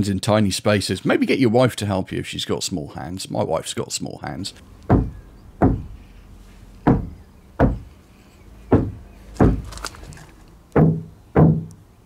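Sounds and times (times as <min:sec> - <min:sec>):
knuckles knocking on sheet metal: 0:04.9 - 0:06.0, 0:06.8 - 0:07.9, 0:08.7 - 0:09.7, 0:10.8 - 0:11.7.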